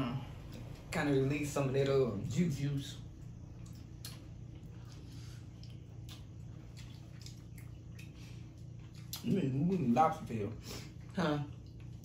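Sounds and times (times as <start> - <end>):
low hum: 0.0 - 12.0
chewing mouth noises: 3.6 - 9.4.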